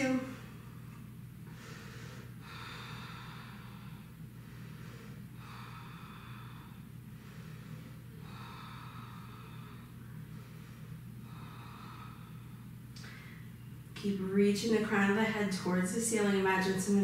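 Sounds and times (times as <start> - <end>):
steady low hum: 0.0 - 17.0
woman breathing slowly: 0.3 - 13.8.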